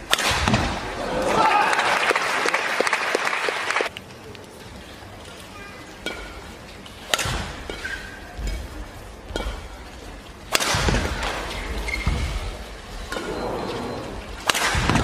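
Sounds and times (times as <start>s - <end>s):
crowd noise: 0.0s - 15.0s
rackets striking shuttlecock: 7.1s - 8.6s
shoes squeaking on court: 7.7s - 8.4s, 11.4s - 12.5s.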